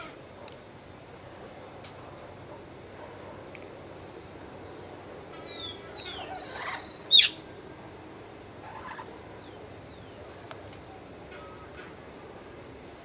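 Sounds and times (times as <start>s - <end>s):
birds whistling: 5.3s - 7.4s
harsh buzzy bird call: 5.4s - 7.4s
loud sharp bird call: 5.4s - 7.4s.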